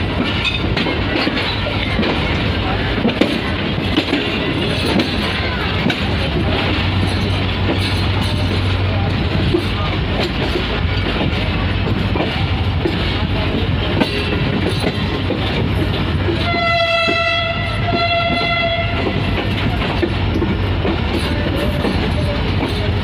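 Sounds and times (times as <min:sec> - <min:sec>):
train wheels clattering on rails: 0:00.0 - 0:23.0
locomotive horn blasts: 0:16.4 - 0:19.3.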